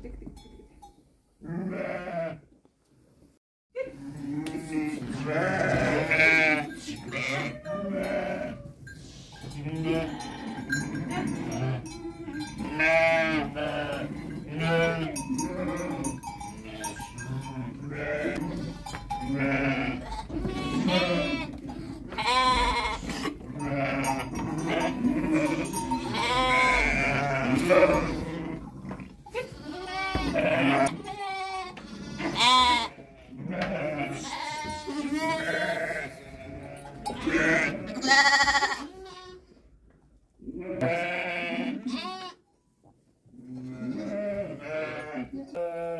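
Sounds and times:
sheep and lambs bleating: 1.4 - 2.4, 4.1 - 39.5, 40.4 - 42.5, 43.4 - 45.9.

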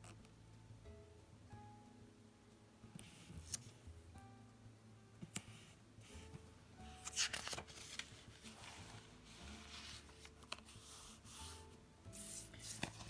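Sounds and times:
faint background music: 0.0 - 13.0
thin pages rustling: 6.9 - 11.0, 12.2 - 13.0.

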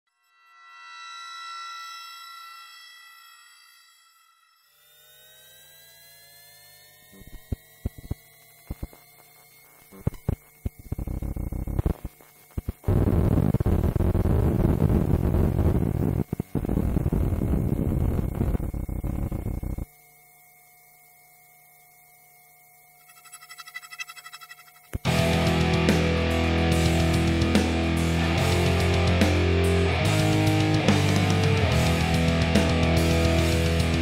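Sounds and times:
rising electronic tones: 0.3 - 19.9
steady hum: 6.5 - 32.5
crackles and static noise: 6.8 - 25.8.

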